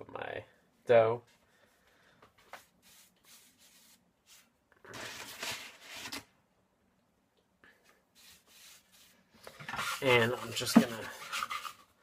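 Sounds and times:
hands brushing flour over dough: 0:02.5 - 0:04.5, 0:08.1 - 0:09.3.

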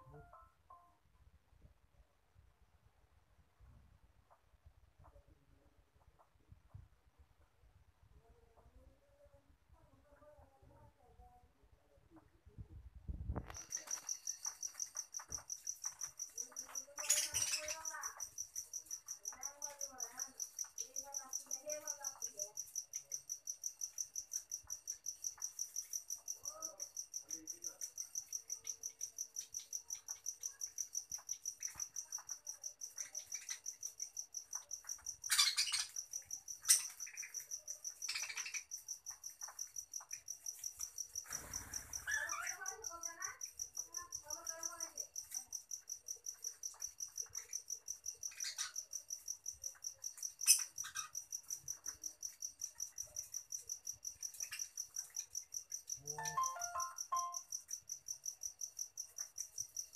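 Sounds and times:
cricket chirping: 0:12.2 - 0:59.9
budgerigars chirping and warbling: 0:16.9 - 0:17.9.

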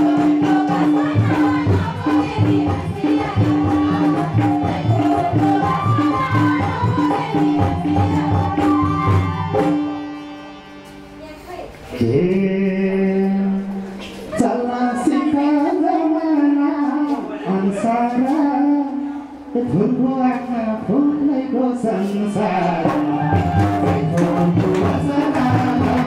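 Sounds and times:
folk music with hand drum: 0:00.0 - 0:12.4, 0:22.0 - 0:26.0
person singing: 0:11.9 - 0:26.0.

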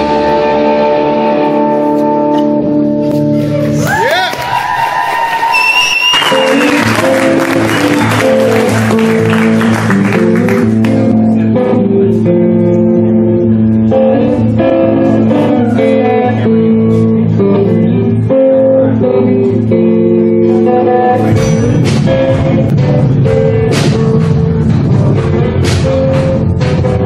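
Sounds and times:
electric guitar chords: 0:00.0 - 0:03.9, 0:05.9 - 0:27.0
bass guitar: 0:00.0 - 0:04.8, 0:05.5 - 0:27.0
drums: 0:20.4 - 0:27.0.

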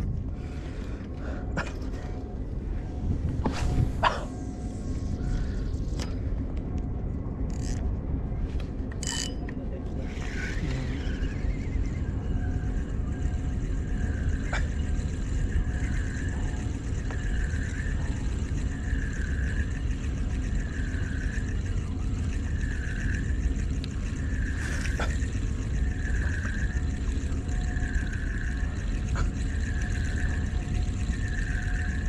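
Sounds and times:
steady low rumble: 0:00.0 - 0:32.0
fishing reel whirring: 0:07.5 - 0:07.8, 0:09.0 - 0:09.4, 0:10.0 - 0:32.0.

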